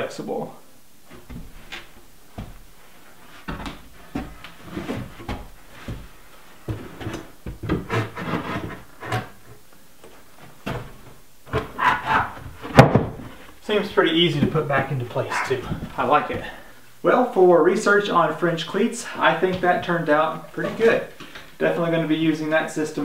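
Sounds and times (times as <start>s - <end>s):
wood scraping and rubbing: 1.0s - 16.7s
wooden knocks: 1.1s - 2.7s.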